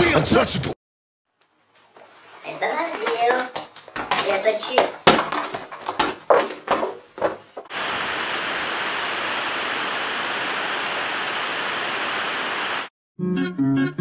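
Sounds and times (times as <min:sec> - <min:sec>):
waterfall rushing: 0:07.7 - 0:12.9.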